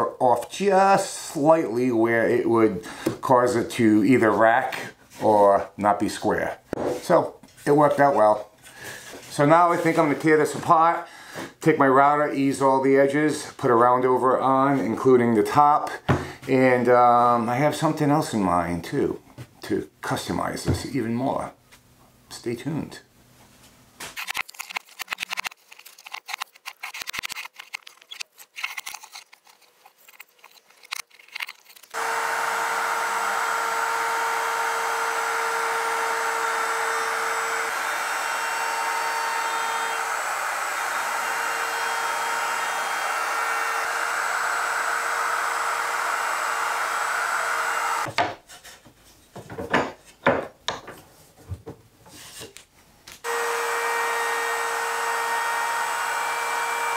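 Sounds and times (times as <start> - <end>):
wood pieces scraping and knocking: 24.0 - 32.0, 48.1 - 52.6
router whining: 31.9 - 48.1, 53.2 - 56.9.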